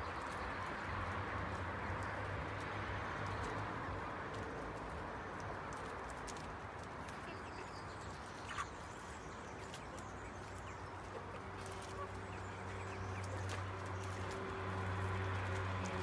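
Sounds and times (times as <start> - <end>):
chickens moving about: 0.0 - 16.0.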